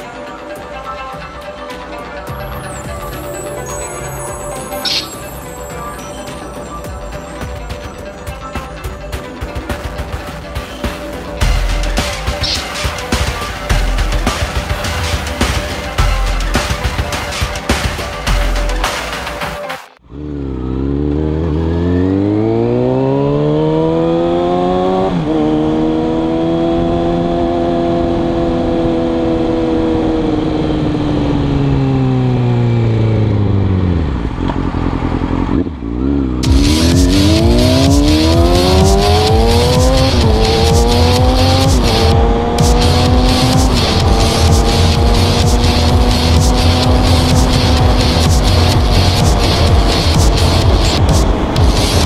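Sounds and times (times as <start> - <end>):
motorcycle engine accelerating: 6.3 - 19.0, 20.0 - 52.0
second motorcycle accelerating hard: 20.0 - 52.0.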